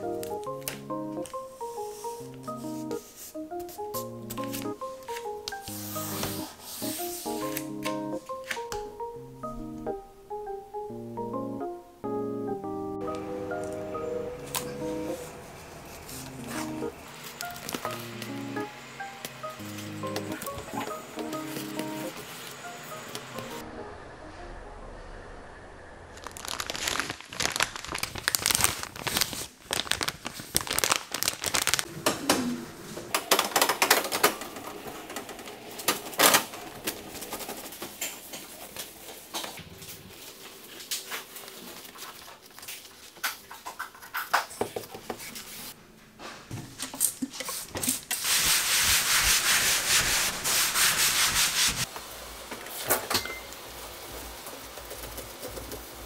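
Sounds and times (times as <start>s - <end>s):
steady hiss: 1.2s - 8.4s, 13.0s - 23.6s, 47.4s - 56.0s
cloth scrubbing surfaces: 47.5s - 51.9s.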